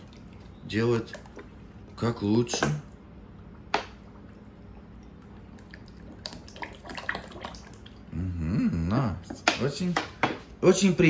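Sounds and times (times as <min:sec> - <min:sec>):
liquid pouring into a pot: 0:00.0 - 0:08.1.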